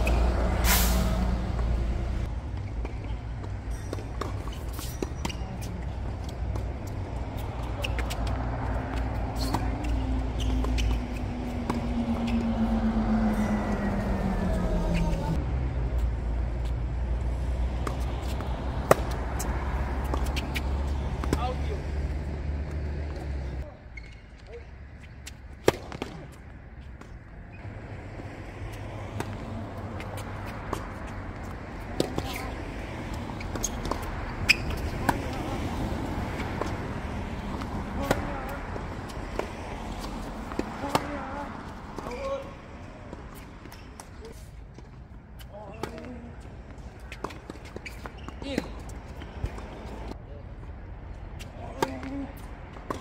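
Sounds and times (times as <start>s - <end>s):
tennis ball hitting racket: 3.8s - 12.7s, 17.8s - 21.6s, 25.2s - 26.4s, 29.1s - 32.6s, 33.4s - 42.5s, 51.4s - 53.0s
ball bouncing on court: 39.3s - 42.4s.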